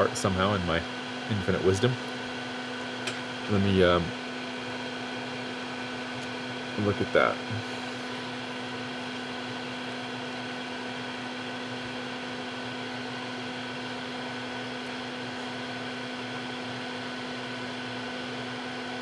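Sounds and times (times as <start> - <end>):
steady machine hum: 0.0 - 19.0.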